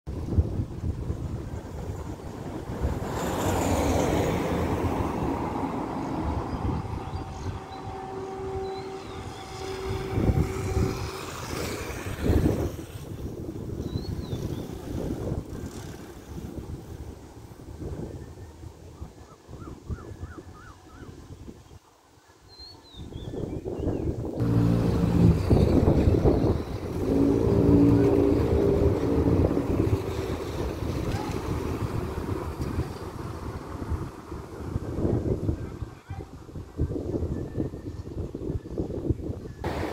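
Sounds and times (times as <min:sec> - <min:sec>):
wind gusting on microphone: 0:00.1 - 0:21.8, 0:22.4 - 0:39.9
distant engine hum: 0:02.3 - 0:13.2, 0:24.4 - 0:34.9, 0:39.7 - 0:39.9
vehicle engine approaching: 0:24.4 - 0:34.8.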